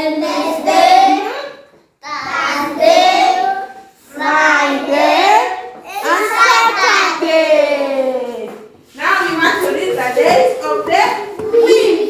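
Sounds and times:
children singing in unison: 0.0 - 1.4, 2.0 - 7.3.

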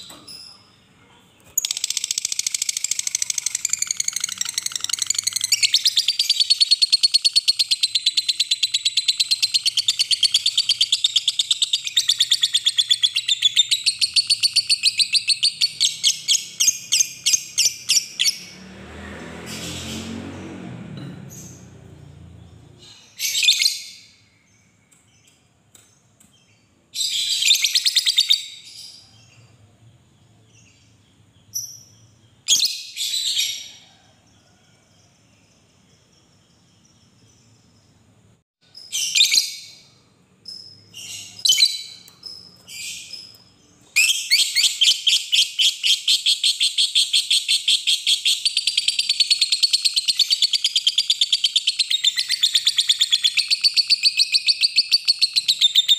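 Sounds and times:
rapid chattering bird trill: 1.6 - 16.8.

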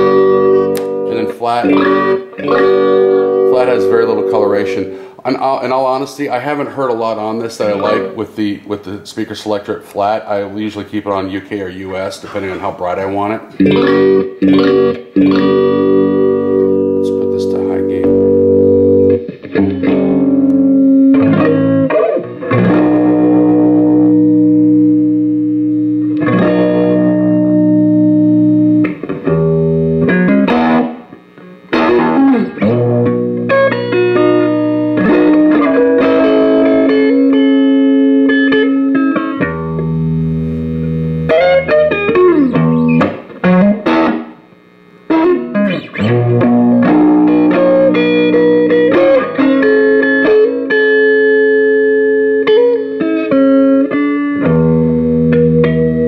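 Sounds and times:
distorted electric guitar: 0.0 - 56.0.

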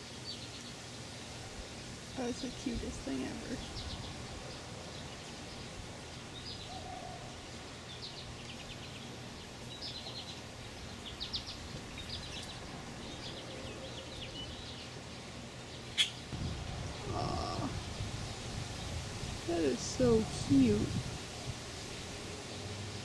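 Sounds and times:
faint outdoor hiss: 0.0 - 23.0
bird chirping: 2.3 - 19.0.

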